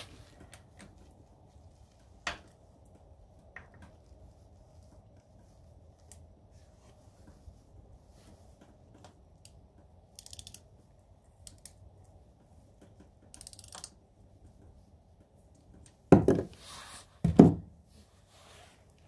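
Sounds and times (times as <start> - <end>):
ratchet clicking: 10.1 - 10.6, 13.3 - 13.9.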